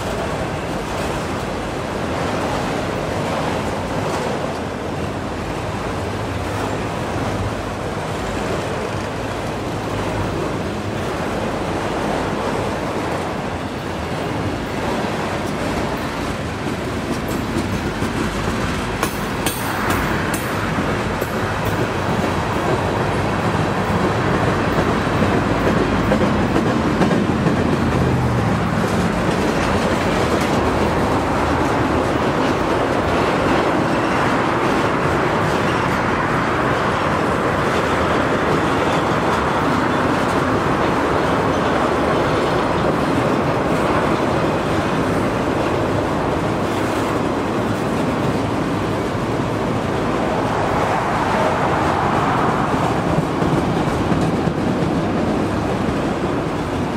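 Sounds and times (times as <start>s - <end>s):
train wheels rumbling on rails: 0.0s - 56.9s.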